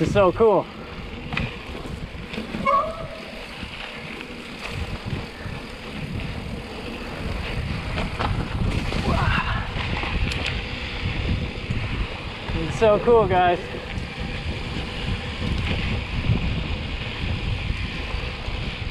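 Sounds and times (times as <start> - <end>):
bike tyres rolling on dirt and leaves: 0.0 - 18.9
wind buffeting microphone: 0.0 - 18.9
bike knocking over bumps: 1.0 - 13.2
short high squeak: 2.6 - 3.2.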